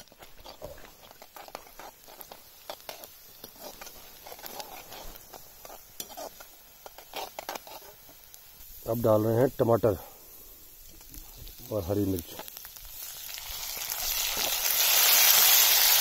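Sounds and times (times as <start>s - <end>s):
metal spoon scraping a pan: 0.0s - 8.3s
faint sizzle: 0.0s - 16.0s.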